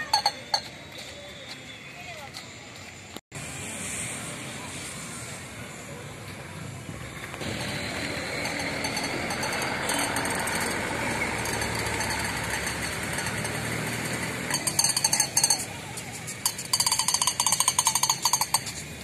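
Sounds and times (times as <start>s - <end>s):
outdoor background noise: 0.0s - 19.0s
metallic clinking: 7.4s - 19.0s.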